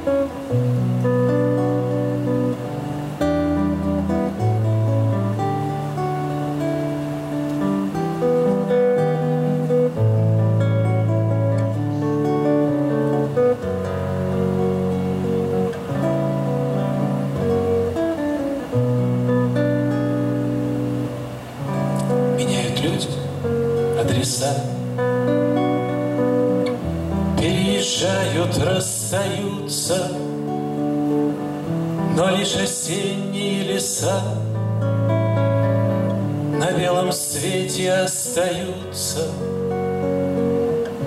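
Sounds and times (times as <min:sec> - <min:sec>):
acoustic guitar chords: 0:00.0 - 0:41.0
man singing: 0:22.4 - 0:25.1, 0:27.3 - 0:30.8, 0:32.0 - 0:34.6, 0:36.5 - 0:39.8.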